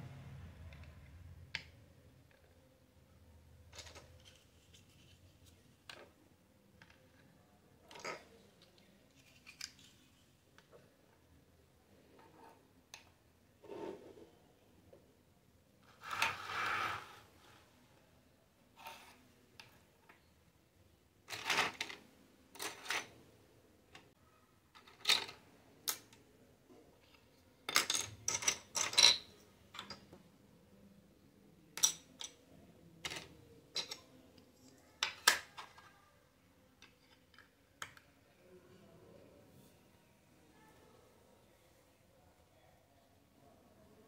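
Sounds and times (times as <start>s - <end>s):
plastic toy dishes clattering: 3.7s - 5.0s, 7.9s - 8.4s, 21.3s - 23.2s, 27.7s - 30.2s, 31.8s - 32.4s, 33.0s - 34.1s.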